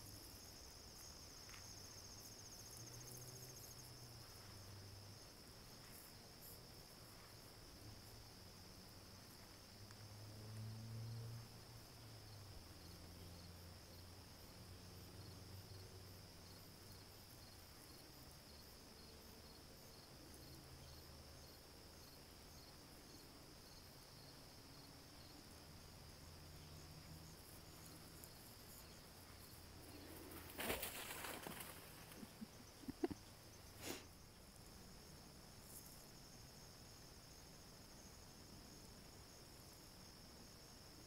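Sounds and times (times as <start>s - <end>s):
insect trill: 0.0s - 41.0s
brief rustling: 30.3s - 32.4s.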